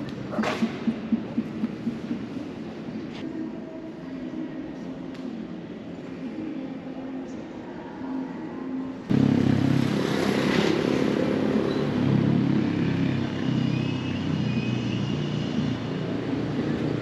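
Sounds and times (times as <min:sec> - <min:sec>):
city traffic rumble: 0:00.0 - 0:17.0.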